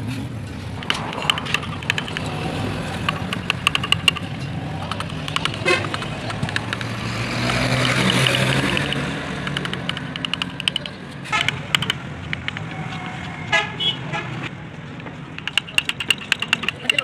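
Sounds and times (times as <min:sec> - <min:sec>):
road traffic: 0:00.0 - 0:17.0
chisel cutting wood clicks: 0:00.8 - 0:12.7, 0:15.4 - 0:17.0.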